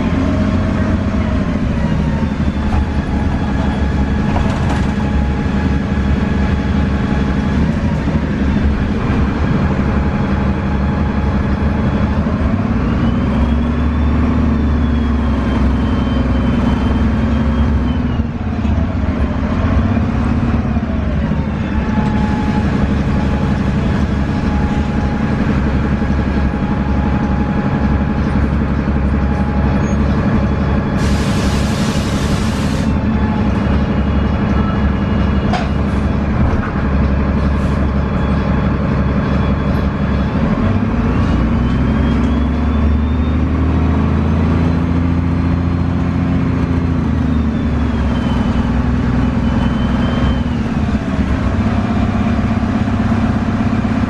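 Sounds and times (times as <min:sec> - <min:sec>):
diesel bus engine running: 0:00.0 - 0:54.0
loud air hiss: 0:31.0 - 0:33.0.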